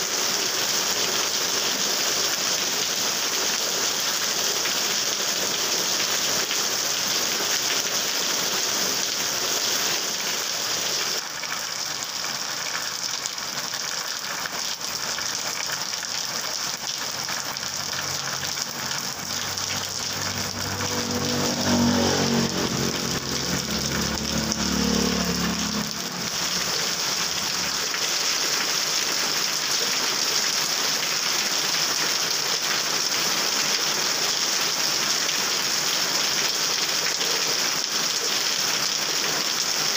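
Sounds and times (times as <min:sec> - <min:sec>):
heavy rain on wet road: 0:00.0 - 0:39.9
vehicle engine: 0:17.3 - 0:28.1.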